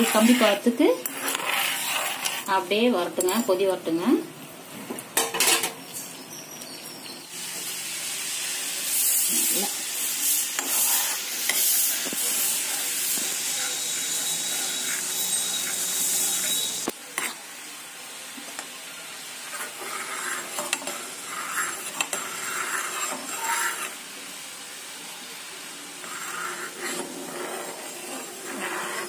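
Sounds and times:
metal ladle scraping a pan: 0.0 - 3.6, 5.2 - 5.8, 10.2 - 17.4, 19.4 - 24.0, 26.0 - 29.0
loud hiss: 7.3 - 16.9.

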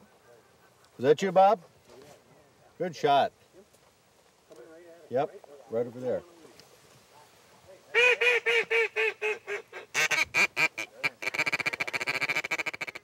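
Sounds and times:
duck call quacks: 7.9 - 13.0.

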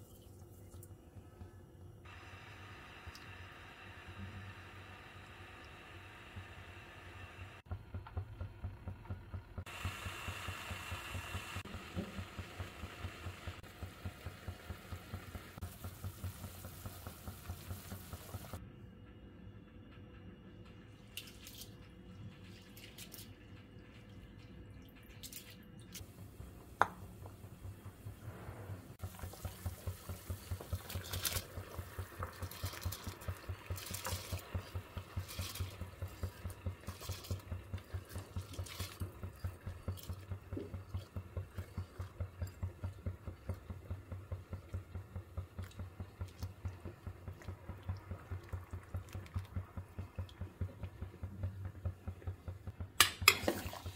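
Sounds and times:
rice rinsed by hand in water: 8.6 - 18.6, 20.8 - 53.9
low rhythmic pulsing: 26.0 - 53.0
water splashing in pot: 29.0 - 53.9.

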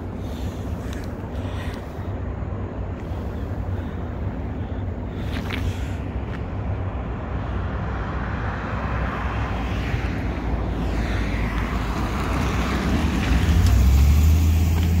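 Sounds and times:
car passing: 4.7 - 15.0.

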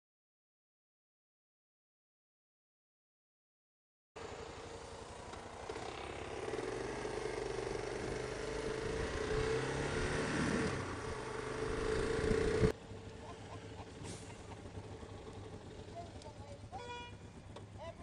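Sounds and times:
motorcycle engine running: 4.2 - 18.0
wind and road noise: 4.2 - 18.0.

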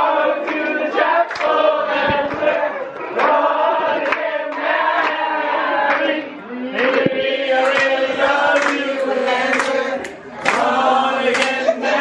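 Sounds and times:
group of people singing: 0.0 - 12.0
hand claps: 0.4 - 3.4, 4.0 - 5.2, 5.8 - 6.2, 6.8 - 11.7.

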